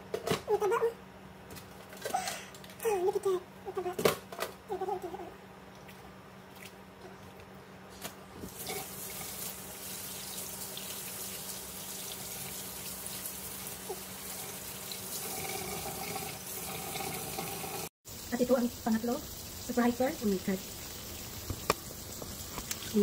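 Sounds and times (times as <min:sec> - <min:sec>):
water running into steel sink: 0:08.5 - 0:23.0.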